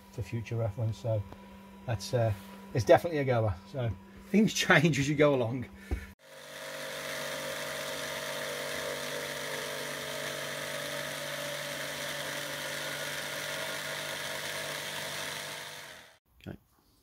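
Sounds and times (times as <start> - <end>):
jigsaw cutting plywood: 6.2 - 16.2.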